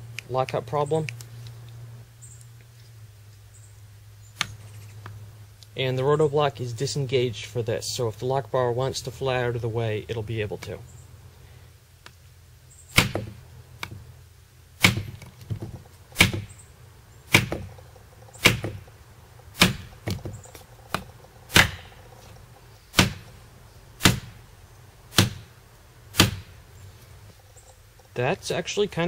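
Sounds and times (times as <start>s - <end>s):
knife striking wooden log: 12.9s - 14.0s, 14.8s - 16.6s, 17.3s - 17.8s, 18.4s - 18.9s, 19.5s - 22.0s, 22.9s - 23.4s, 24.0s - 24.4s, 25.1s - 25.5s, 26.1s - 26.5s.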